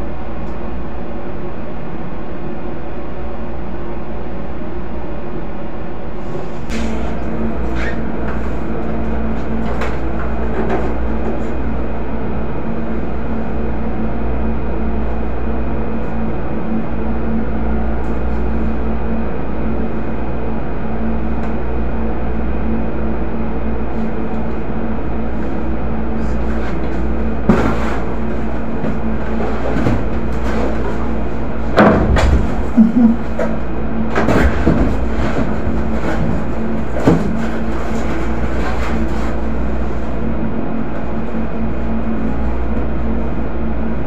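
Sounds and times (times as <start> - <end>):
steady mechanical hum: 0.0 - 44.0
boxes knocking on wooden shelves: 26.8 - 38.5.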